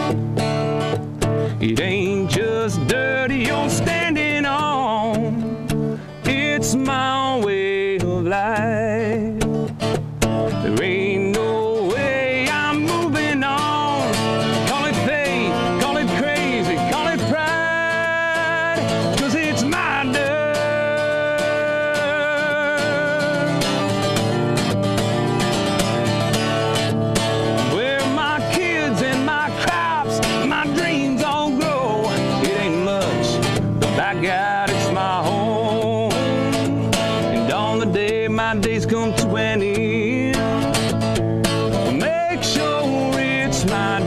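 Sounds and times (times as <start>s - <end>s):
country song with guitar: 0.0s - 44.0s.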